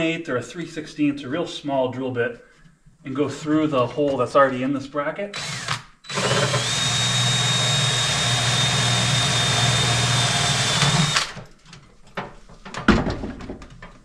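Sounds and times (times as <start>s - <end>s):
cordless drill whining: 5.3s - 11.5s
thump: 12.8s - 13.6s.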